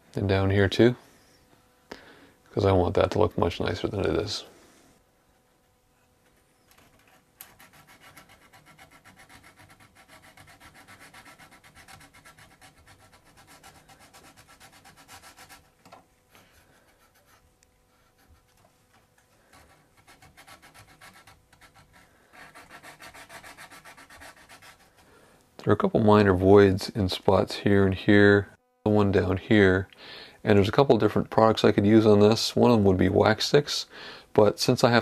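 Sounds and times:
sandpaper rubbing on wood: 6.8 - 15.7, 19.5 - 25.0.

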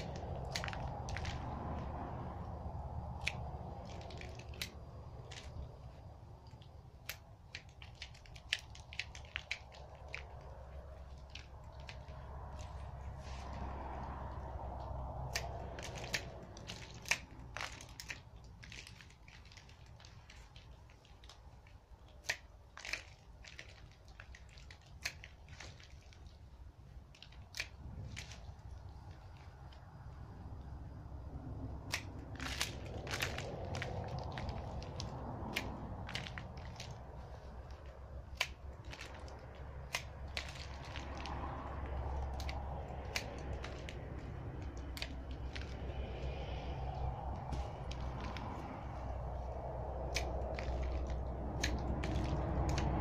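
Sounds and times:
pruning shears snipping twigs: 0.0 - 20.1, 31.6 - 53.0
steady low rumble: 0.0 - 53.0
pruning shears snipping: 14.7 - 18.2.

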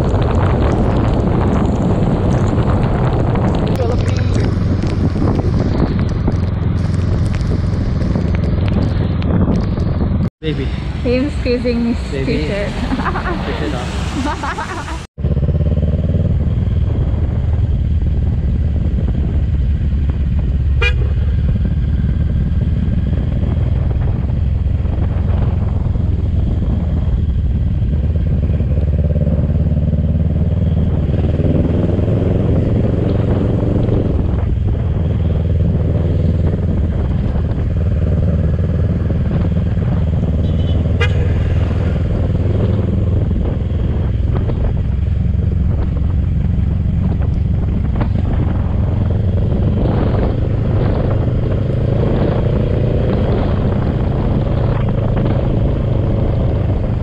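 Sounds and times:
motorcycle engine running: 0.0 - 12.2, 14.5 - 57.0
wind and road noise: 0.0 - 57.0
horn tooting: 20.8 - 21.2, 40.4 - 41.8.

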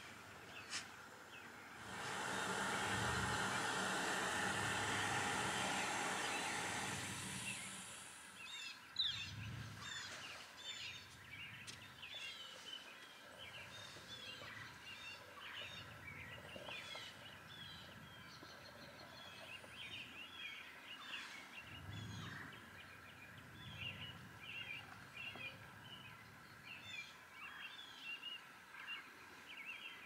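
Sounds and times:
faint high hum: 0.0 - 12.0
small birds chirping: 0.0 - 30.0.

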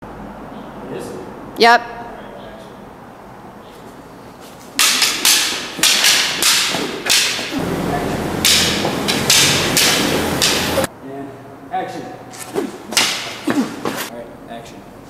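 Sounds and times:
toy lightsabers clacking: 4.8 - 7.5.

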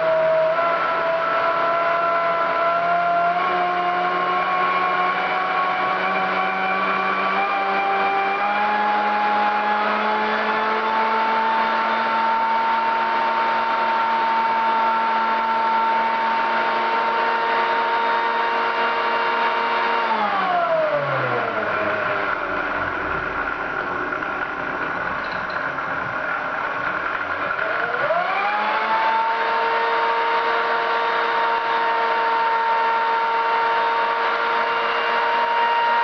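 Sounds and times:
stand mixer motor whine: 0.0 - 36.0.

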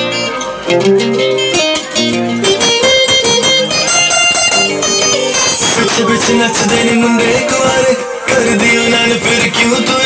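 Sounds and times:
plucked-string dance music: 0.0 - 10.0.

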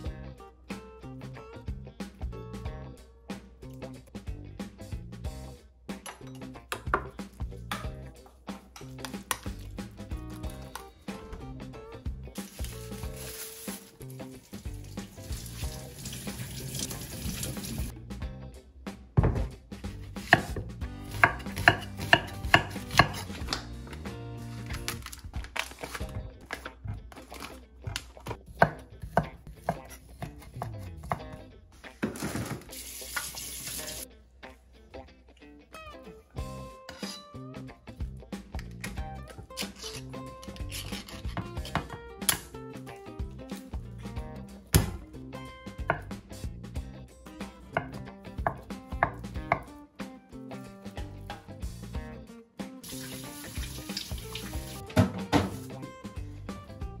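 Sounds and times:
knife knocking on cutting board: 19.2 - 19.5
knife chopping on wooden board: 20.2 - 23.6, 28.5 - 31.3, 44.8 - 45.0, 47.8 - 49.7
meat dropping onto board: 44.8 - 45.0.

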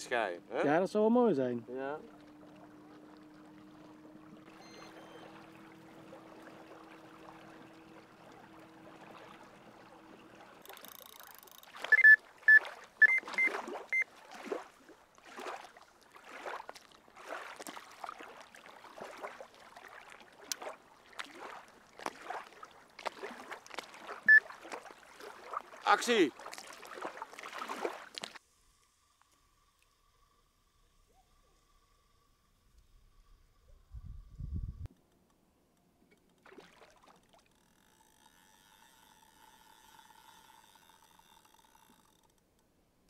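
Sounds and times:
electric boat motor humming: 0.0 - 14.2, 37.0 - 42.7
small waves lapping at shore: 0.0 - 30.0, 36.4 - 42.3
bite alarm beeps: 4.5 - 5.4, 11.9 - 14.1, 24.3 - 24.5.

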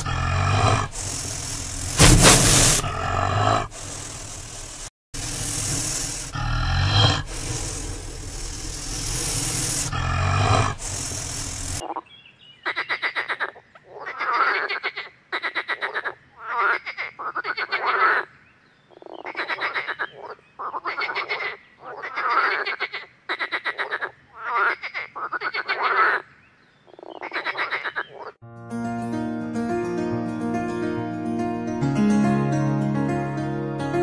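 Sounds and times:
frog croaking: 5.2 - 12.1, 12.7 - 18.3, 18.9 - 26.3, 26.9 - 28.4.

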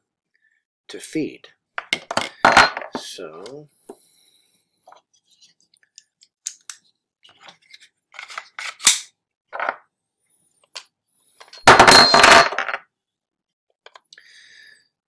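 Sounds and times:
pistol parts clicking: 6.0 - 6.8.

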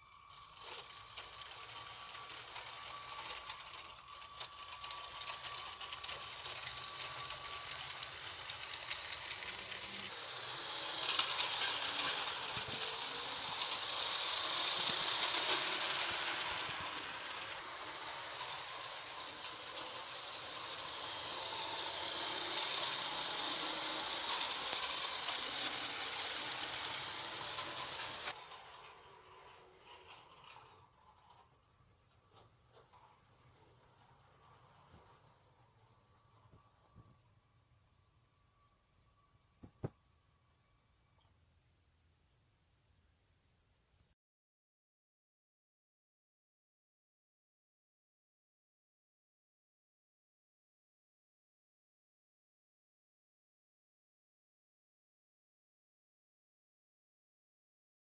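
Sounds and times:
toy train motor running: 0.0 - 37.1.

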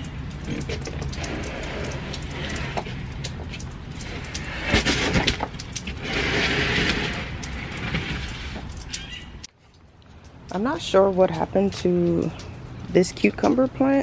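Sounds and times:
pot scraping on concrete: 0.0 - 9.5
steady rain: 0.0 - 13.4
raindrops ticking: 0.0 - 14.0.

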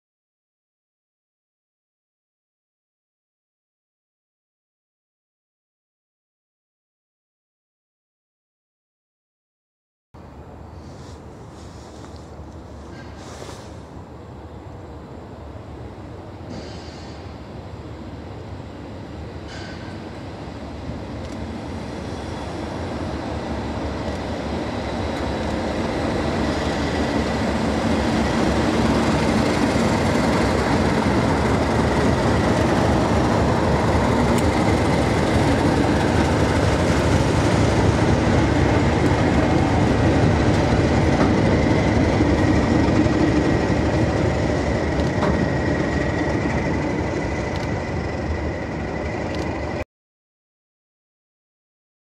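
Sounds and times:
diesel locomotives passing: 10.2 - 49.8.

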